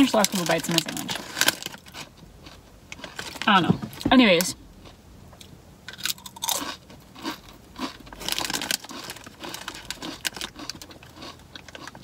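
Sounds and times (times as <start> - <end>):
chip crunching: 5.9 - 12.0.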